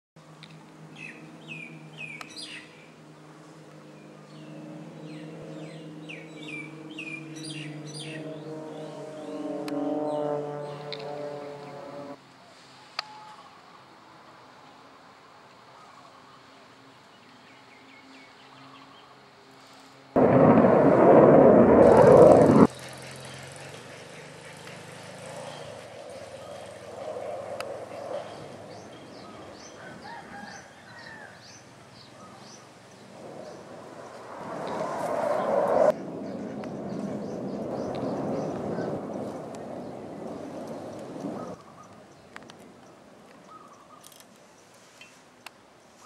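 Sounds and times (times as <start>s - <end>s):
propeller planes droning: 0.2s - 12.3s, 19.6s - 44.3s
small birds chirping: 1.0s - 2.9s, 22.7s - 34.3s, 36.2s - 46.0s
jet fighter engine roar: 4.6s - 12.2s, 20.2s - 24.0s, 24.6s - 29.6s, 33.0s - 41.6s.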